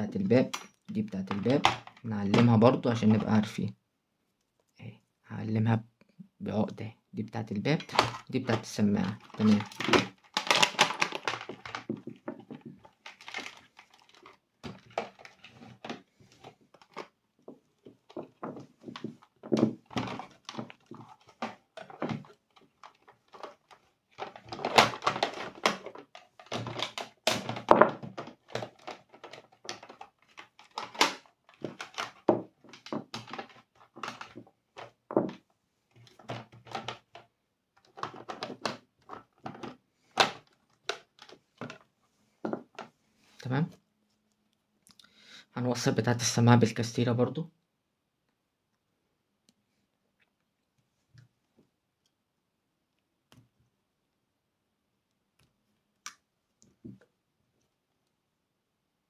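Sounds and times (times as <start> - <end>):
cable rustling: 0.0 - 3.4, 7.6 - 44.5
plastic parts clicking and knocking: 0.0 - 3.4, 7.6 - 43.0, 55.4 - 57.2.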